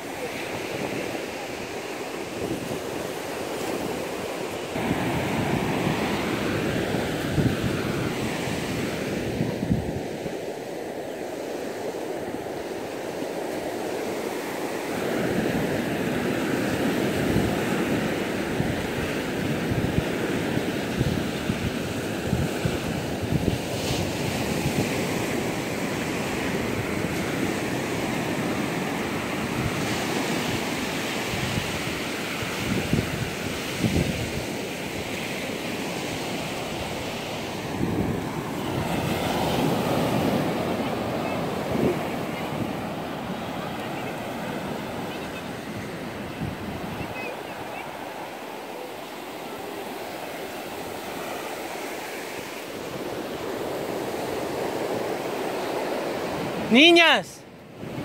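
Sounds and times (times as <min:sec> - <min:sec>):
ocean surf breaking: 0:00.0 - 0:58.0
wind rumble on microphone: 0:04.8 - 0:10.4, 0:17.2 - 0:28.6, 0:29.2 - 0:34.7.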